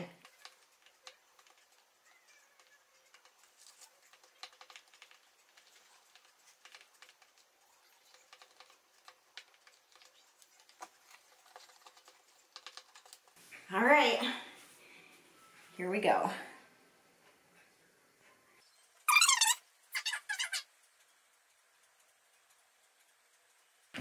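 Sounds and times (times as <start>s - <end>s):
spoon stirring in plastic tumbler: 0.1s - 13.5s.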